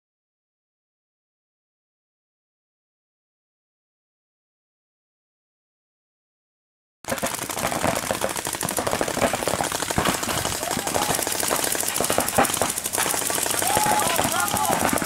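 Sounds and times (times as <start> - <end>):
paintball guns firing rapidly: 7.1 - 15.0.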